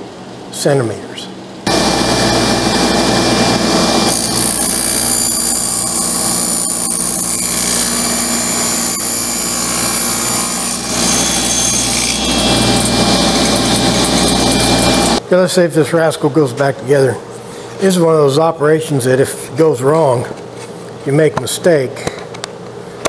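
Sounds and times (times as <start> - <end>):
table saw cutting wood: 1.7 - 15.2.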